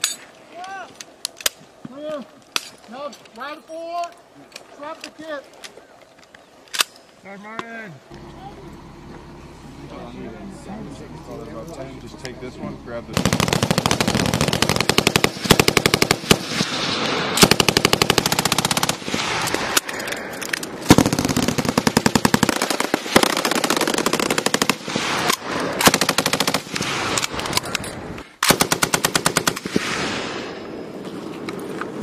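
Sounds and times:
machine gun bursts: 0:13.2 - 0:16.4, 0:17.4 - 0:19.1, 0:20.8 - 0:27.6, 0:28.4 - 0:29.8.

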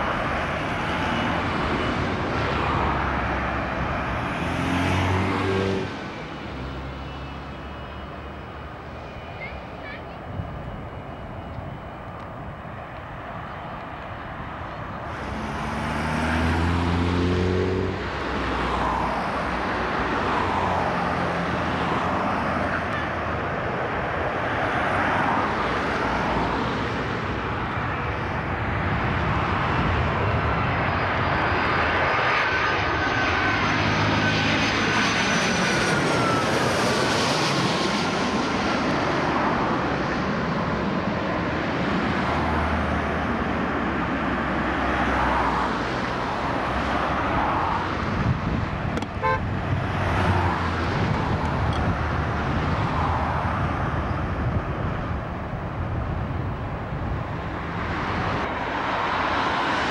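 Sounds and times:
jet engines at take-off thrust: 0:00.0 - 0:59.9
landing airliner engine whine: 0:00.0 - 0:59.9.

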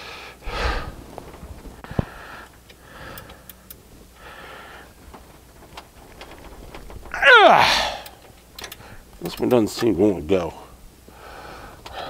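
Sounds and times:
sharp metal clicks: 0:07.9 - 0:10.0
wrench ratcheting: 0:08.0 - 0:09.6.

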